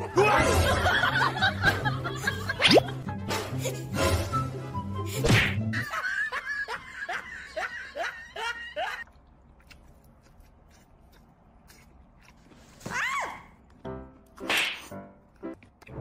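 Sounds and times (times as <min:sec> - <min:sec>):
music: 0:00.0 - 0:05.9, 0:13.7 - 0:16.0.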